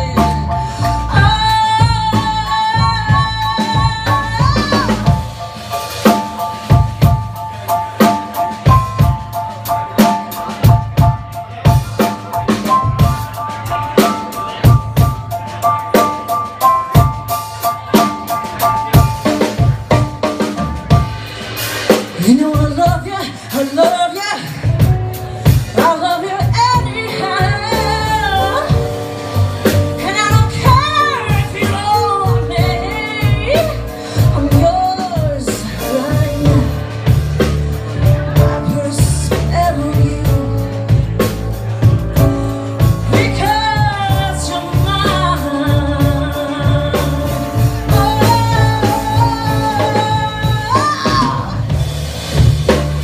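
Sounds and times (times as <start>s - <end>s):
woman singing: 0.0s - 7.3s, 22.1s - 37.2s, 37.9s - 41.3s, 42.8s - 51.8s
drum kit beat: 0.0s - 53.0s.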